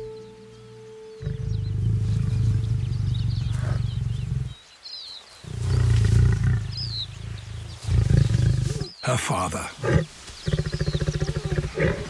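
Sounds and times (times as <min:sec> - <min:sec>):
birds chirping faintly: 0:00.0 - 0:12.0
lion roaring: 0:01.2 - 0:04.6, 0:05.5 - 0:08.9, 0:09.7 - 0:12.0.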